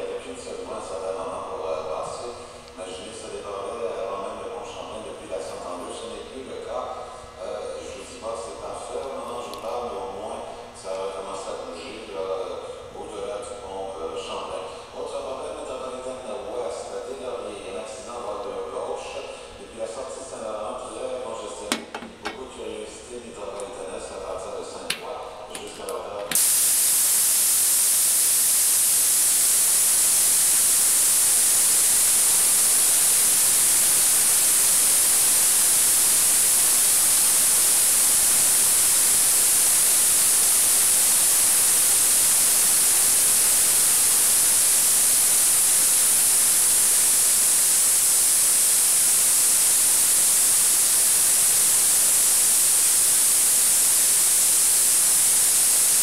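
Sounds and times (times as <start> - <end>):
ultrasonic cleaning tank hiss: 23.4 - 56.0.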